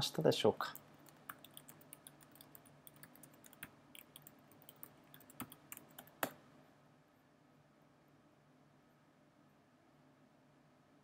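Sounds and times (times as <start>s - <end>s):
computer keyboard typing: 0.8s - 6.4s.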